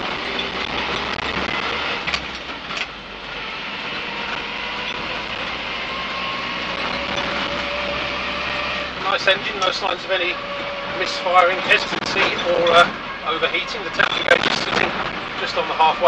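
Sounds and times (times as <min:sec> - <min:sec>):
clunks: 0:00.0 - 0:03.0, 0:09.2 - 0:13.0
truck engine pulling: 0:00.0 - 0:16.0.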